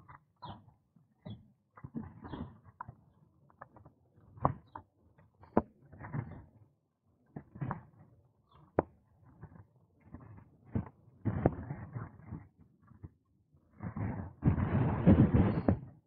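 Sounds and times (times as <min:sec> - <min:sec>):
wind on microphone: 0:13.8 - 0:16.0.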